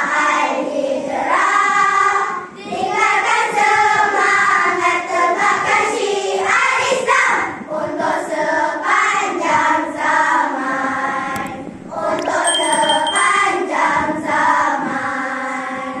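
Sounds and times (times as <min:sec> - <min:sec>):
high bell-like ding: 0:11.4 - 0:11.6, 0:12.2 - 0:13.5
clicks: 0:11.4 - 0:13.4.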